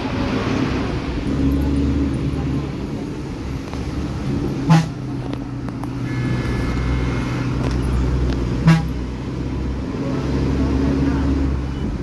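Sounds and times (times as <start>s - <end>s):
bus diesel engine running: 0.0s - 12.0s
vehicle horn toots: 6.0s - 7.5s, 8.6s - 9.0s.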